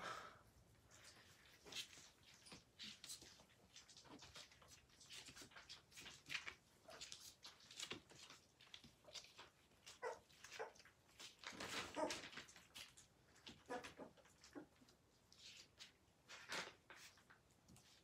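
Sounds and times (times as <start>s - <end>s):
puppies smacking and lapping food: 0.9s - 18.0s
puppy whimpers: 9.1s - 12.6s, 13.5s - 14.9s.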